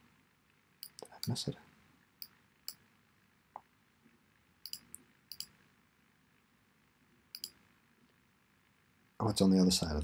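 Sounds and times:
computer mouse clicks: 0.8s - 1.4s, 4.6s - 5.6s, 7.3s - 7.6s.

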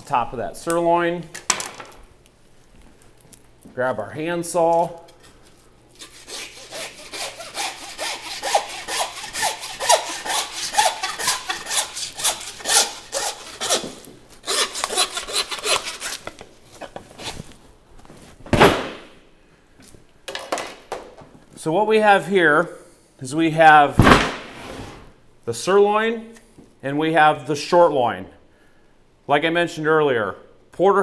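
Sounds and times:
handsaw cutting bone: 6.0s - 16.2s
loud thump: 18.5s - 19.2s, 24.0s - 25.0s.

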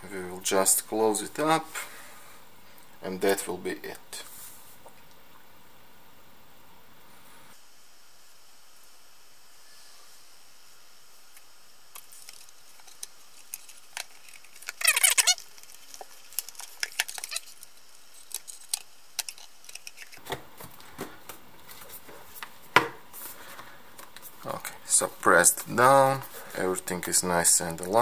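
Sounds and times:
high squeak: 14.8s - 15.4s.

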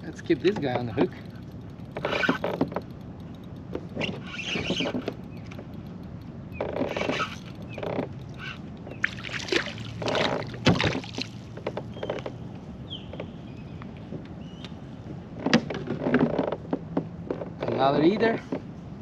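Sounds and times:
fishing line handling noise: 0.0s - 11.9s
fish splashing in water: 9.0s - 11.6s.

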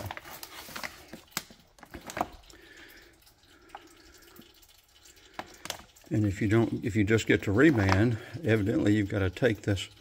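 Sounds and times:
paper crinkling: 0.0s - 2.5s.

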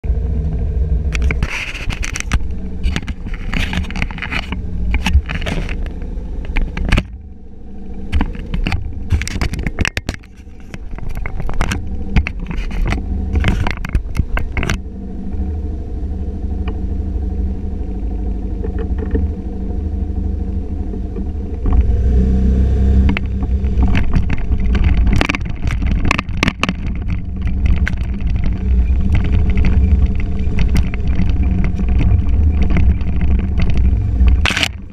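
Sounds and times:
low rush of riding: 0.0s - 34.9s
scooter engine running: 0.1s - 34.9s
camera knocks and scrapes: 1.2s - 7.2s, 8.1s - 14.8s, 23.1s - 34.9s.

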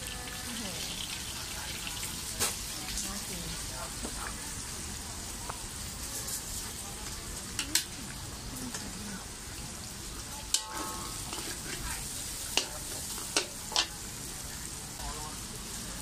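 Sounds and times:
food sizzling in a wok: 0.0s - 16.0s
metal utensils clanking on wok: 10.3s - 14.1s.

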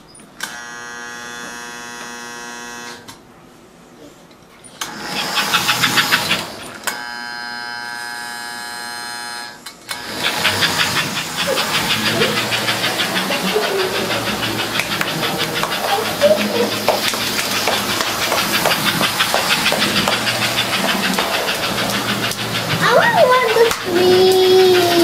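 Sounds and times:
toy steam train chugging: 4.8s - 7.2s, 9.9s - 25.0s.

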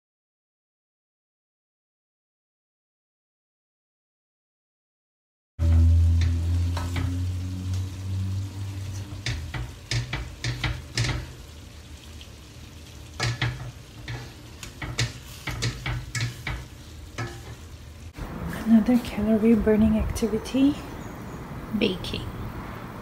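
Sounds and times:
low hum: 5.6s - 10.4s
spatula scraping pot: 8.8s - 11.5s, 13.2s - 17.6s.

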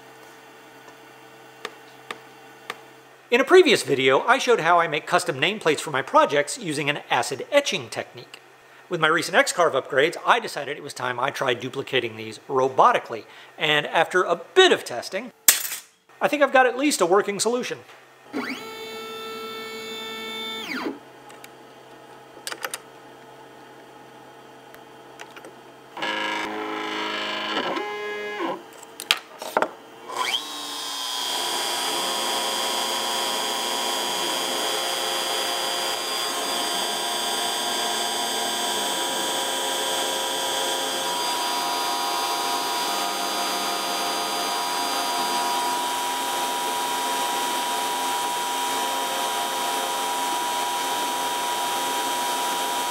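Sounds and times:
router motors whining: 18.3s - 21.0s, 26.0s - 28.6s, 30.0s - 52.9s.

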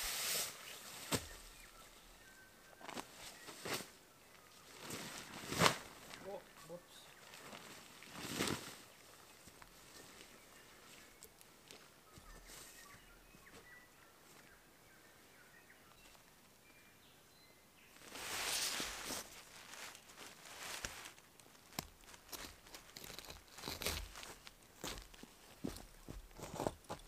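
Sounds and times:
faint bird chirps: 0.5s - 5.2s, 9.0s - 18.6s
tent fabric rustling: 2.8s - 10.3s, 18.0s - 24.5s
crunches on leaf litter: 18.0s - 24.5s.

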